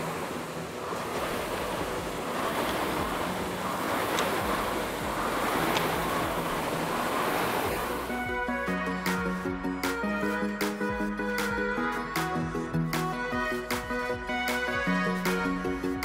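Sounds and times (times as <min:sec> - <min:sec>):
rowing machine flywheel whooshing: 0:00.0 - 0:10.8.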